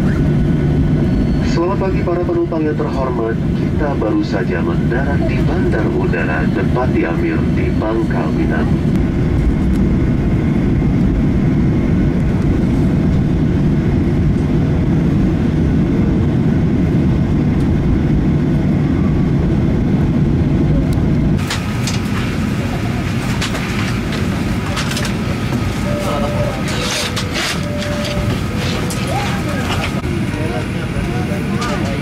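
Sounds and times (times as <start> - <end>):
jet engines rumbling: 0.0 - 32.0.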